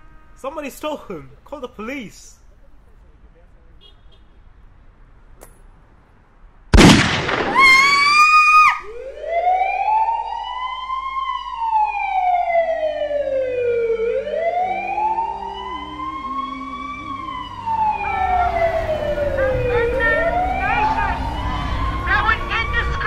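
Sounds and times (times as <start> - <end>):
loud gunshot bang: 6.7 - 7.8
police siren wailing: 7.6 - 23.0.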